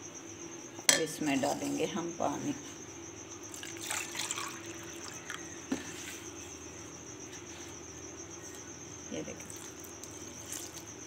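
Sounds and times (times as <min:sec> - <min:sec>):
water splashing into bowl: 0:03.6 - 0:05.3.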